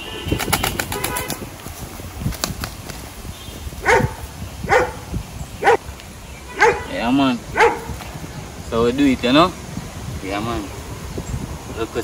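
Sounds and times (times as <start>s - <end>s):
pigeon wings flapping: 0.3s - 3.1s
dog barking: 3.8s - 5.0s, 5.6s - 5.8s, 6.5s - 8.0s.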